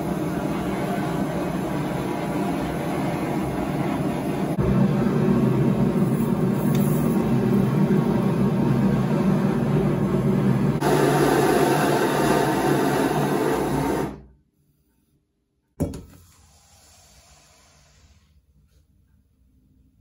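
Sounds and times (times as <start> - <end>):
gas torch hissing: 5.4 - 14.2, 16.3 - 18.4
hot steel hissing in oil: 16.4 - 18.4.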